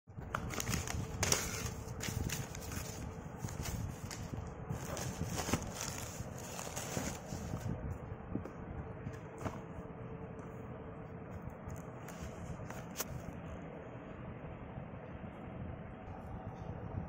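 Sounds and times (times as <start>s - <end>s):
plastic packing crinkling: 0.2s - 7.7s.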